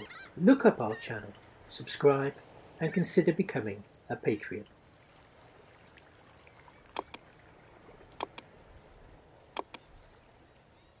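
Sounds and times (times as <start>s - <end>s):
computer mouse double clicks: 7.0s - 7.2s, 8.2s - 8.4s, 9.6s - 9.8s.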